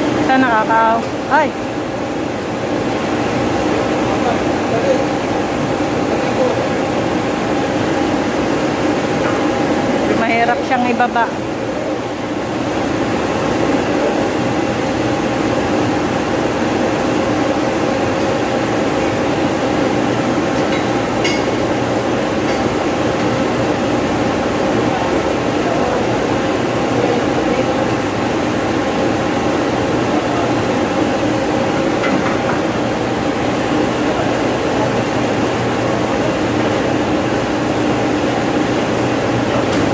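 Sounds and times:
cooling tower mechanical drone: 0.0s - 39.9s
sharp metallic clank: 20.7s - 21.7s.

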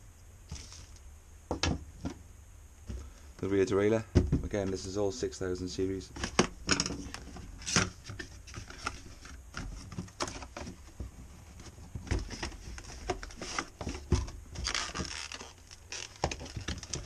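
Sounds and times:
cardboard rustling and scraping: 0.5s - 1.0s, 4.3s - 17.0s.

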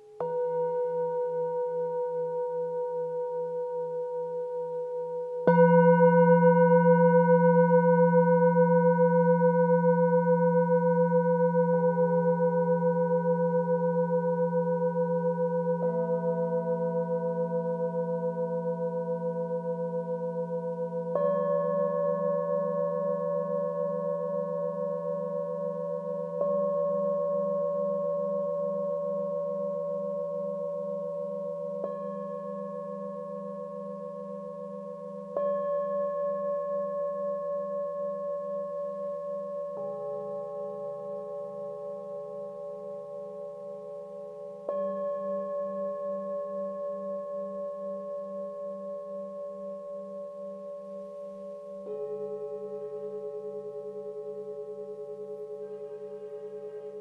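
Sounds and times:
singing bowls struck with mallet: 0.0s - 57.0s.

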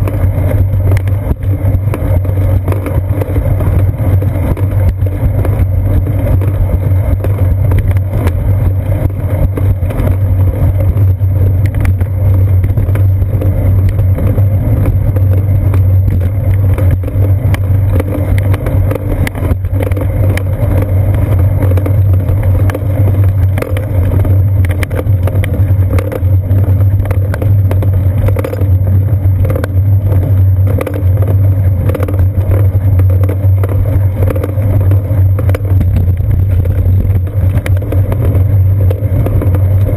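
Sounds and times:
bicycle rolling over concrete: 0.0s - 39.9s
wind on camera: 0.0s - 39.9s.

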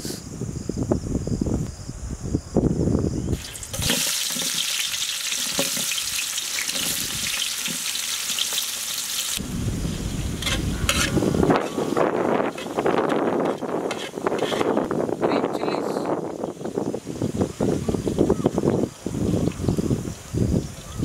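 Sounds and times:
onions sizzling in hot oil: 3.3s - 11.5s
ladle scraping a pot: 10.4s - 11.8s, 12.4s - 14.9s.

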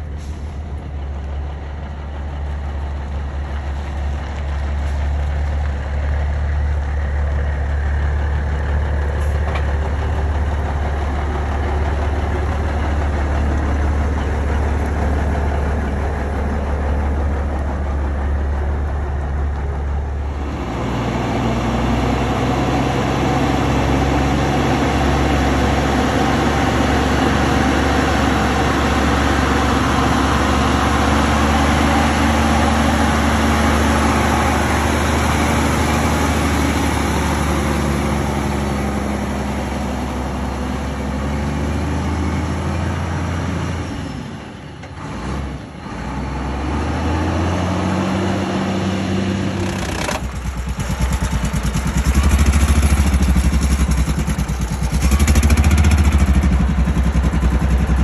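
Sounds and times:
truck engine idling: 0.0s - 46.5s, 49.6s - 58.0s.

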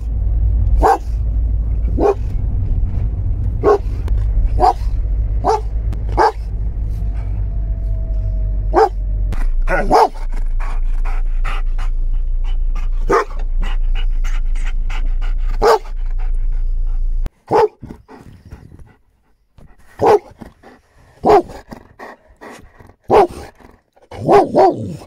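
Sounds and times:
low hum: 0.0s - 17.3s
dog barking: 0.8s - 1.2s, 1.9s - 2.3s, 3.6s - 3.9s, 4.5s - 6.5s, 8.7s - 9.0s, 9.7s - 10.3s, 13.1s - 13.4s, 15.6s - 15.9s, 17.5s - 17.8s, 20.0s - 20.3s, 21.2s - 21.6s, 23.1s - 23.5s, 24.1s - 25.0s.

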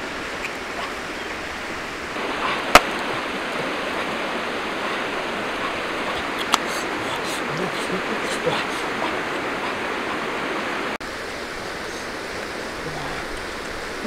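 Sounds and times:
stream water flowing: 0.0s - 14.0s
sharp crack: 2.7s - 3.2s.

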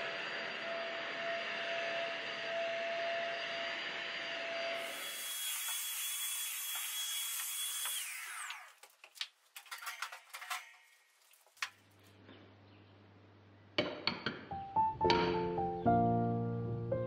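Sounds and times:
vacuum cleaner on carpet: 0.0s - 5.8s.

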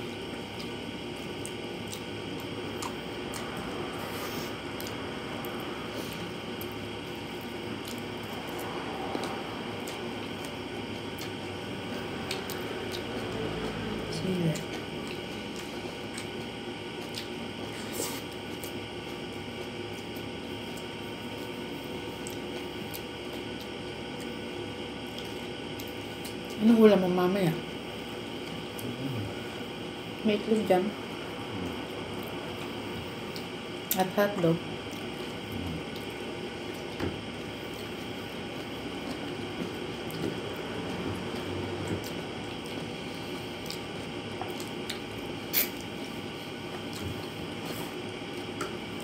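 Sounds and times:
chewing: 0.4s - 21.6s, 31.5s - 33.6s, 34.8s - 48.8s
wet squishing of food: 34.7s - 49.0s.

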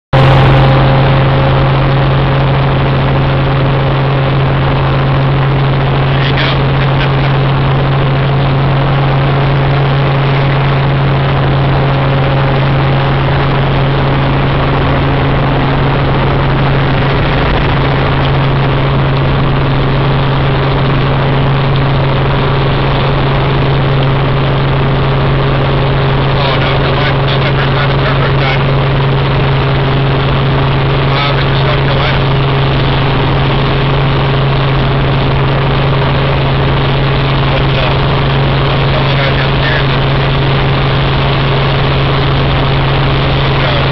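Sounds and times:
helicopter engine and rotor: 0.1s - 43.9s.

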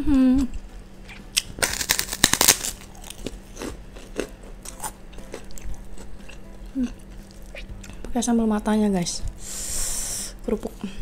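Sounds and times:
cracker crunching: 1.1s - 8.0s.

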